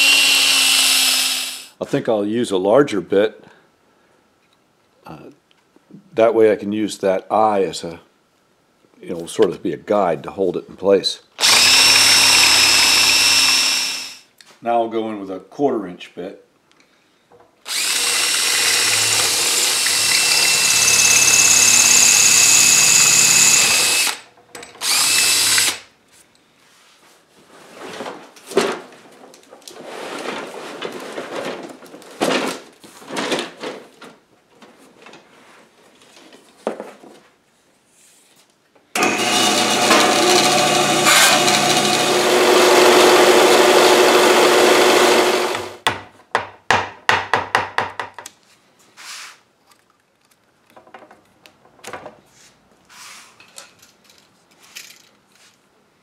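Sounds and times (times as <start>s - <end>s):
power drill boring metal: 0.0s - 1.7s, 11.4s - 14.2s, 17.7s - 24.2s, 24.8s - 25.8s, 39.0s - 45.8s.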